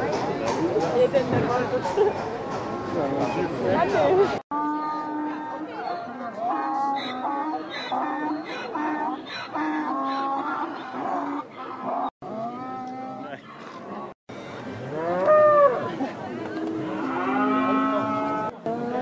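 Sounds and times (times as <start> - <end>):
cattle mooing: 16.8 - 19.0.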